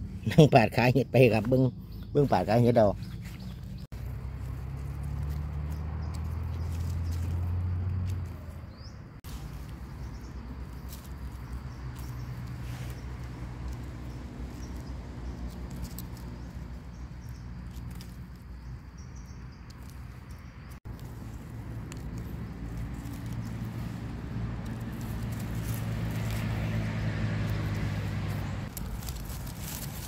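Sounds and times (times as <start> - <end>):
dry leaves rustling: 2.8 - 30.0
knife scraping mushroom stems: 10.7 - 18.8, 19.6 - 30.0.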